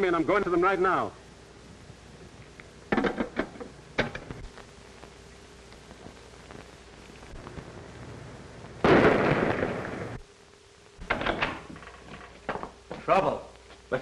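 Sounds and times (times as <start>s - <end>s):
faint steady hiss: 0.0s - 14.0s
loud explosion: 8.8s - 10.2s.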